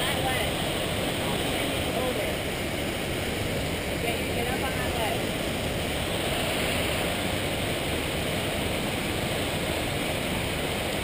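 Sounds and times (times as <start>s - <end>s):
creek water rushing: 0.0s - 11.0s.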